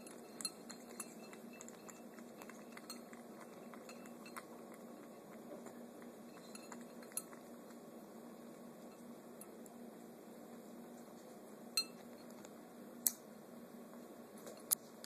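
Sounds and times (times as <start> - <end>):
kittens lapping liquid: 0.0 - 13.2.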